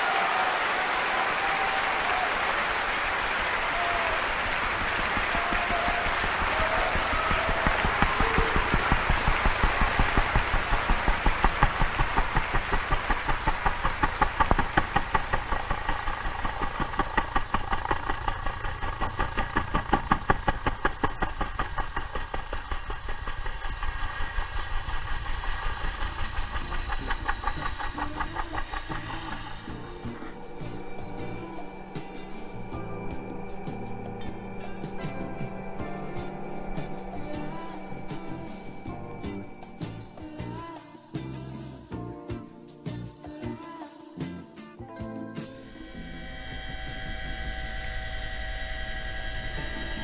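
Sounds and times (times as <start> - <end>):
helicopter rotor beat: 0.0 - 41.7, 45.6 - 50.0.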